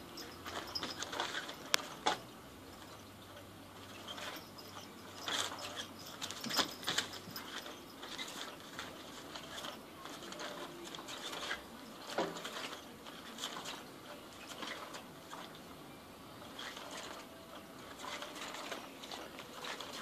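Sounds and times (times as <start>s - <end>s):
wand rustling against fabric: 3.9s - 13.9s
toy motor clicking and rattling: 4.0s - 13.8s.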